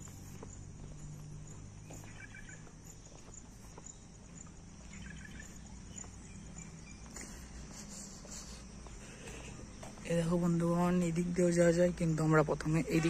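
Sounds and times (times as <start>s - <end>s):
bird chirps: 0.0s - 10.0s
footsteps on paved path: 0.0s - 13.0s
insects trilling: 0.0s - 13.0s.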